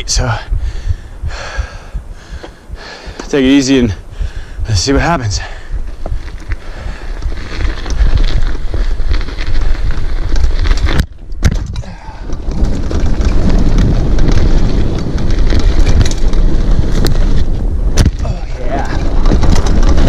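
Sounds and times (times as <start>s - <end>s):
wind buffeting microphone: 0.0s - 20.0s
bike tyre noise: 0.1s - 20.0s
bike clattering on rough ground: 5.3s - 20.0s.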